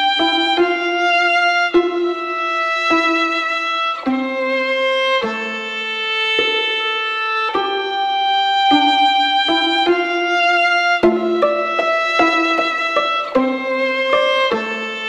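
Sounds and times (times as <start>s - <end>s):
slow instrumental melody: 7.5s - 15.0s.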